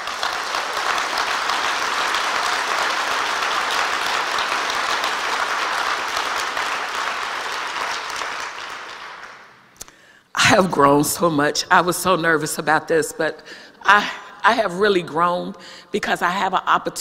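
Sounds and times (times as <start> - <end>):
audience applauding in hall: 0.0 - 9.8.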